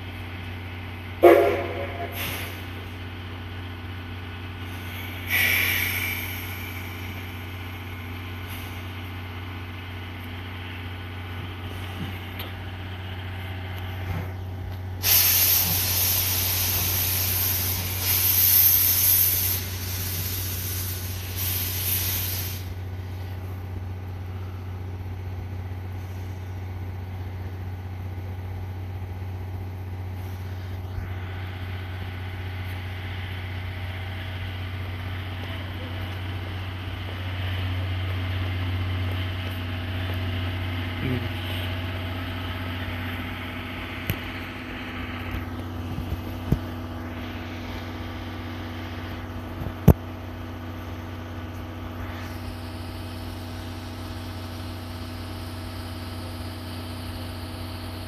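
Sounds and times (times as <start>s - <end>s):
train low hum: 0.0s - 58.0s
air brake hissing: 1.2s - 3.0s, 4.6s - 7.6s, 8.4s - 9.0s, 15.0s - 23.3s.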